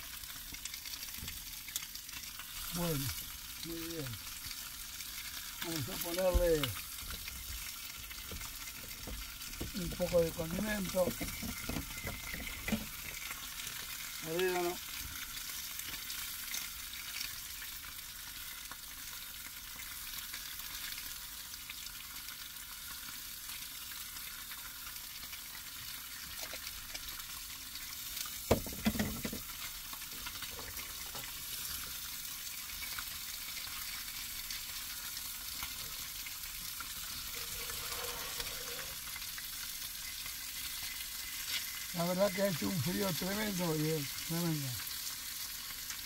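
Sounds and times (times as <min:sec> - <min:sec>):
fish fillets sizzling in a pan: 0:00.0 - 0:46.0.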